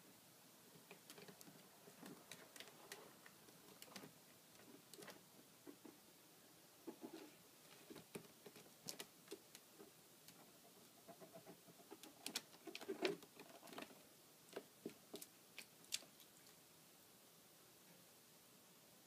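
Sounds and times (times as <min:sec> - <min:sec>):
claws clicking on plastic: 0:00.8 - 0:05.2, 0:07.9 - 0:10.4.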